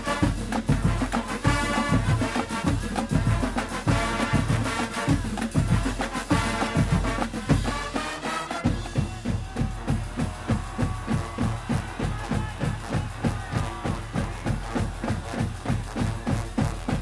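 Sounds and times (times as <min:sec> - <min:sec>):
bass drums and percussion: 0:00.0 - 0:17.0
marching band brass: 0:00.0 - 0:17.0.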